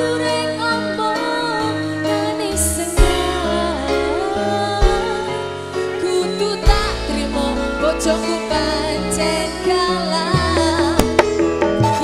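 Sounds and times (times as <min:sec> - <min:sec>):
live band music: 0:00.0 - 0:12.0
sharp drum hits: 0:10.8 - 0:12.0.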